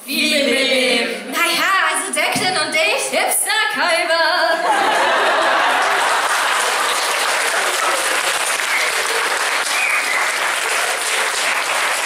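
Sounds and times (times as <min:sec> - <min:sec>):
audience applauding: 0:04.9 - 0:12.0
short high cheers: 0:07.3 - 0:11.0.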